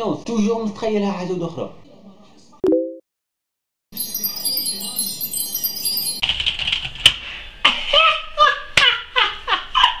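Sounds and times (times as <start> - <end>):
tinkling chime sound effect: 3.9 - 6.2.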